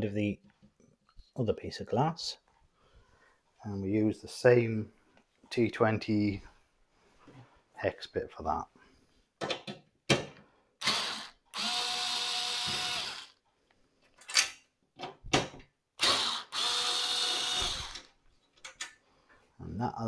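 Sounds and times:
cordless drill running: 0:10.8 - 0:13.4, 0:16.0 - 0:18.1.

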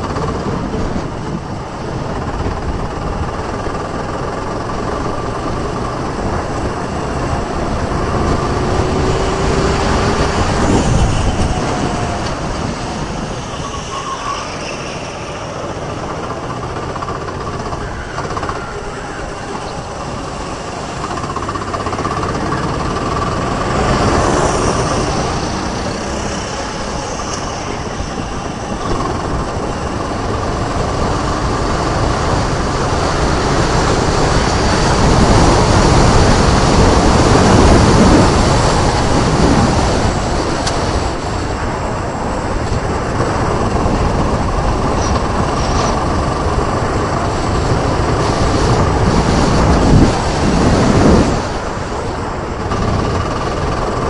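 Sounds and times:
go-kart engine revving: 0:00.0 - 0:54.0
wind rushing over microphone: 0:00.0 - 0:54.0.

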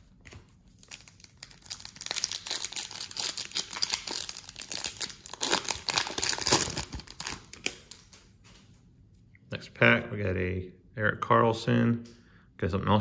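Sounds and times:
foil wrapper tearing and crinkling: 0:00.7 - 0:08.0.

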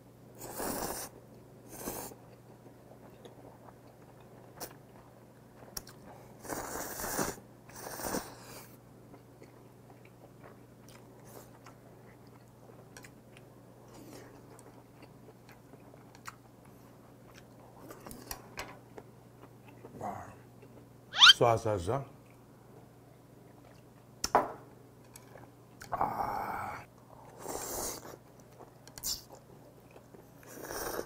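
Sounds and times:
chewing with wet mouth clicks: 0:03.0 - 0:06.2, 0:09.1 - 0:13.5, 0:14.3 - 0:18.4, 0:23.4 - 0:24.3, 0:28.0 - 0:30.2.

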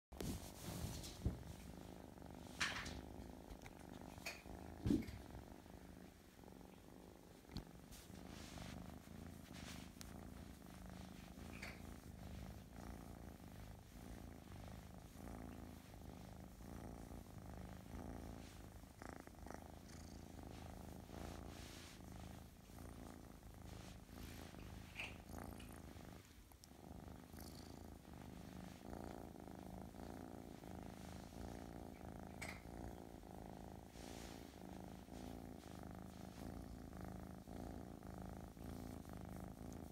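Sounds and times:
kitten purring: 0:00.1 - 0:39.9.

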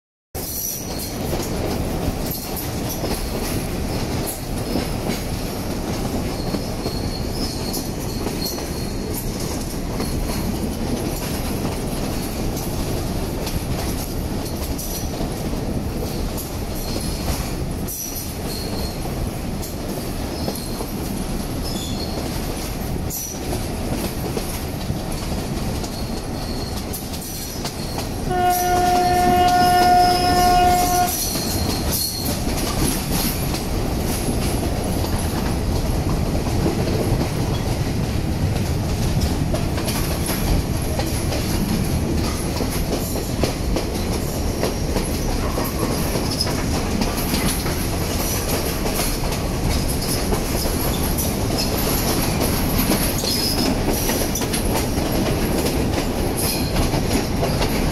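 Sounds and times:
train wheels rumbling on rail: 0:00.4 - 0:57.9
locomotive horn: 0:28.3 - 0:31.6.

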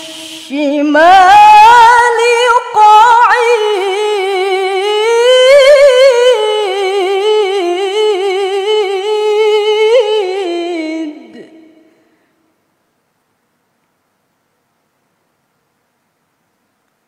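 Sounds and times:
woman reciting melodically: 0:00.0 - 0:12.2.

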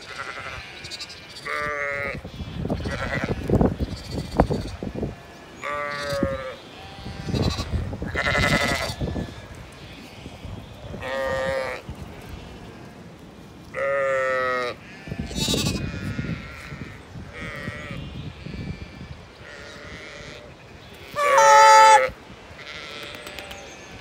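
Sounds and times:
sheep bleating: 0:00.0 - 0:13.0, 0:13.8 - 0:23.7
wind rumble on microphone: 0:01.5 - 0:13.0, 0:13.7 - 0:21.2.

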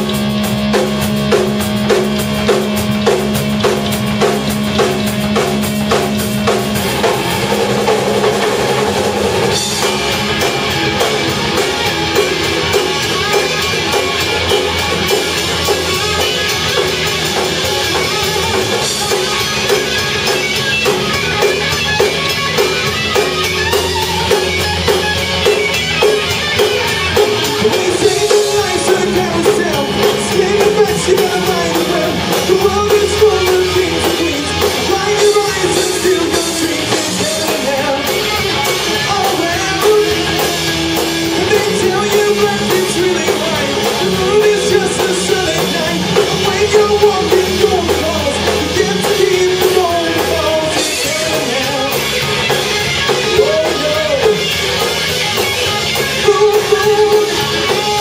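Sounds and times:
bass guitar: 0:00.0 - 0:58.0
drum kit: 0:00.0 - 0:58.0
electric guitar: 0:00.0 - 0:58.0
man singing: 0:27.2 - 0:54.8, 0:55.7 - 0:58.0.

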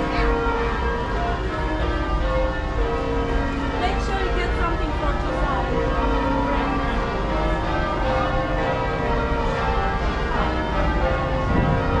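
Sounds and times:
church bells ringing: 0:00.0 - 0:12.0.

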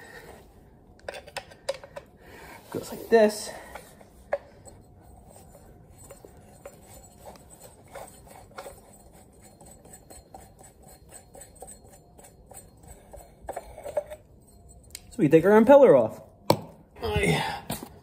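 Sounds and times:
metal and ceramic parts clicking: 0:01.0 - 0:02.1.

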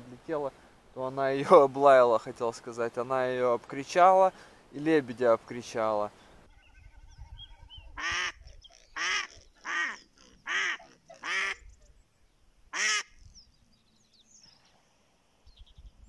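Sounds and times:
faint small bird chirps: 0:06.5 - 0:12.4, 0:13.2 - 0:16.0
duck quacking loudly: 0:08.0 - 0:11.6, 0:12.7 - 0:13.2.

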